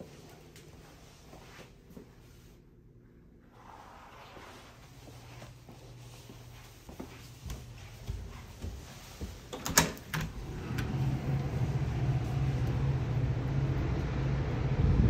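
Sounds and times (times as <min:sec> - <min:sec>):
footsteps on stairs: 0:05.2 - 0:10.3
wind rumble on microphone: 0:12.8 - 0:15.0.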